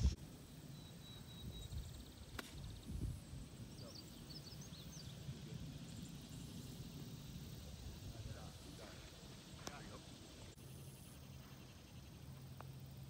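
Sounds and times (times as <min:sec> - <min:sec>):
bird chirping: 0:00.0 - 0:07.8.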